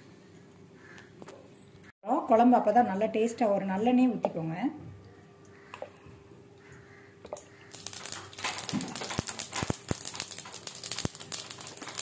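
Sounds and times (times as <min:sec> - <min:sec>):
oil sizzling and crackling: 0:07.4 - 0:12.0.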